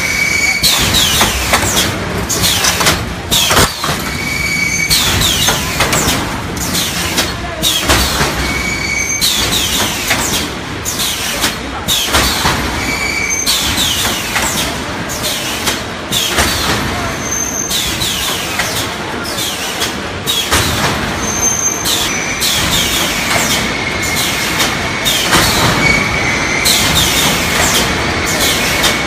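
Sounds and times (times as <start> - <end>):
high falling squeals: 0.0 - 0.8, 4.1 - 5.4
welding machine clanking: 0.0 - 29.0.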